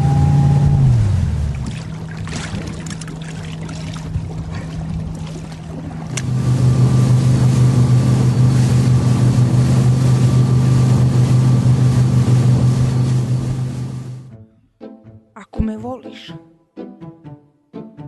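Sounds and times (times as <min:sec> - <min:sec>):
rushing water: 0:00.0 - 0:14.2
motorboat engine droning: 0:00.0 - 0:14.4.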